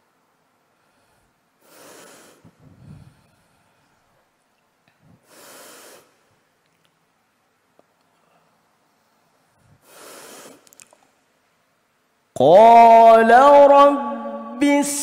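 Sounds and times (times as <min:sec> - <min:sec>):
deep breaths into microphone: 0:00.8 - 0:04.0
person reciting: 0:12.4 - 0:15.0.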